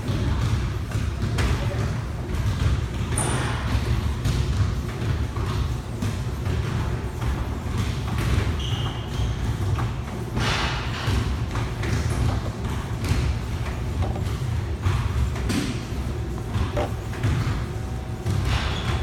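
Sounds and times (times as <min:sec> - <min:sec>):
exercise machines rumbling: 0:00.0 - 0:19.0
machine thumps and knocks: 0:10.4 - 0:19.0.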